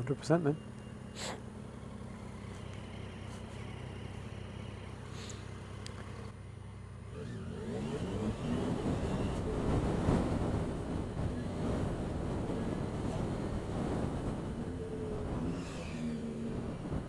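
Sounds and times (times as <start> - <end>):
motorcycle engine idling and accelerating: 0.0 - 17.0
wind noise on microphone: 7.8 - 17.0.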